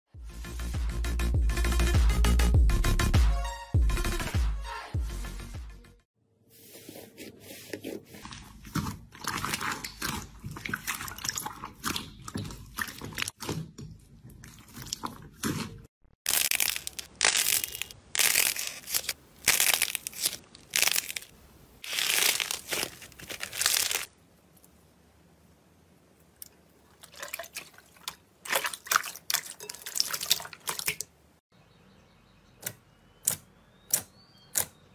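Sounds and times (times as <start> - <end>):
slime balls crunching: 16.3 - 24.1
slime crackling: 16.3 - 24.1.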